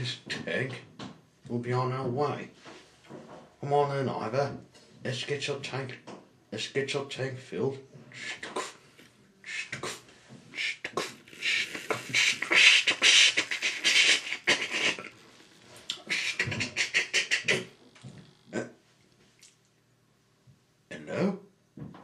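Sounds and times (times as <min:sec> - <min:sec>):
person imitating steam locomotive: 0:08.2 - 0:08.8, 0:09.4 - 0:15.2, 0:15.9 - 0:17.8.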